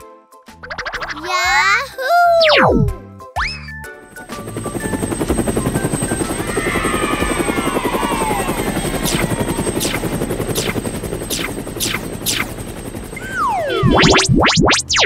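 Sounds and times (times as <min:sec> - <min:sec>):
quick downward swishes: 0:00.6 - 0:01.4, 0:02.3 - 0:03.0, 0:09.0 - 0:12.6, 0:13.2 - 0:15.0
cartoon helicopter rotor chopping: 0:00.6 - 0:01.6, 0:02.4 - 0:03.5, 0:04.1 - 0:15.0
falling whistle: 0:05.7 - 0:12.6.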